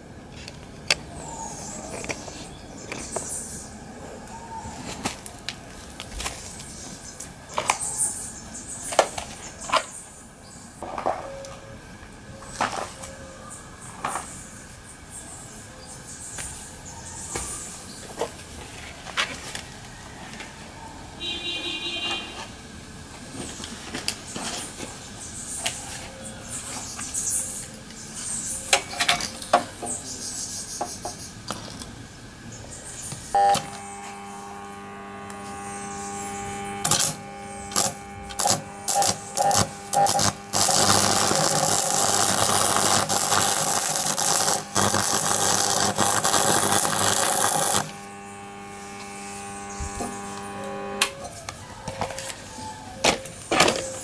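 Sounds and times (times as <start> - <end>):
electrical hum: 0.0 - 54.0
crackling sparks: 33.3 - 51.4.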